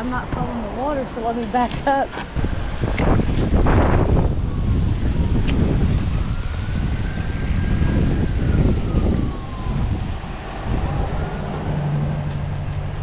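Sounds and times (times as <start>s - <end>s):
wind buffeting microphone: 0.0s - 13.0s
faint siren wail: 3.4s - 13.0s.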